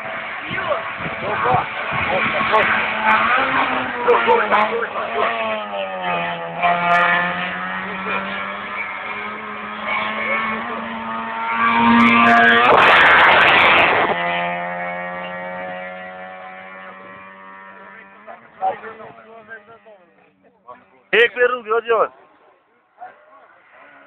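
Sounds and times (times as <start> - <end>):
car engine revving high: 0.0 - 19.9.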